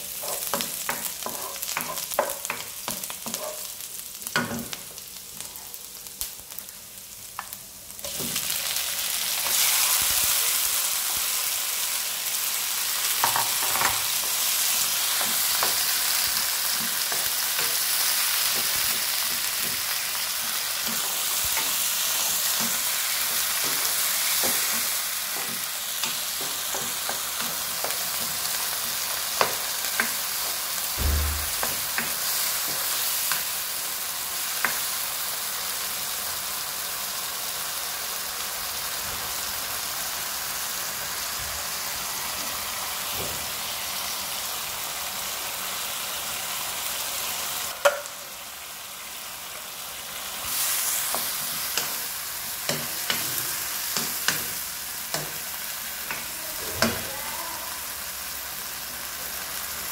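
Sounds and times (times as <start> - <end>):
tomatoes sizzling in oil: 0.0 - 59.9
low thump: 31.0 - 31.6.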